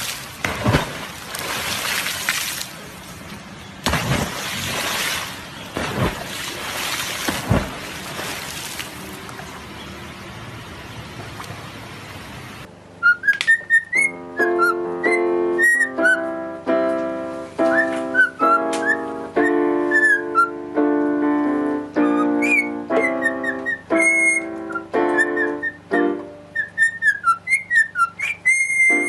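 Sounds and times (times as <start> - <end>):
piano chords: 12.6 - 27.8, 28.8 - 29.0
cockatiel whistling: 13.0 - 16.2, 17.7 - 20.5, 22.1 - 25.8, 26.6 - 29.0.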